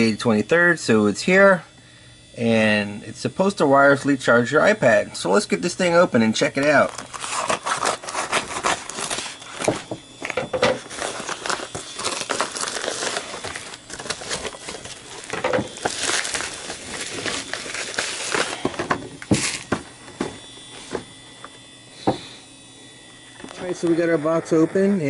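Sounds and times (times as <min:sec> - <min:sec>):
scissors snipping plastic bag: 0:06.6 - 0:09.9, 0:10.8 - 0:19.8
plastic crinkling and rustling: 0:06.6 - 0:21.0.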